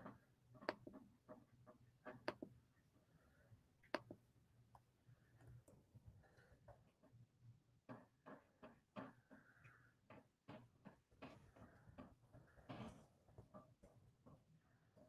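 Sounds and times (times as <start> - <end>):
faint clicks and taps: 0.0 - 2.6, 3.8 - 7.2.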